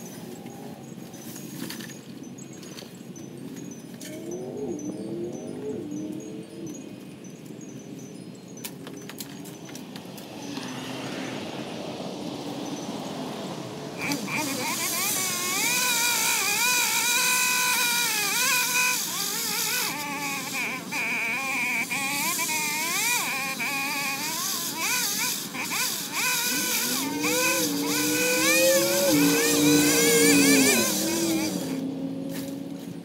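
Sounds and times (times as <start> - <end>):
pole saw engine revving: 14.0 - 33.0
low steady engine note: 21.7 - 33.0.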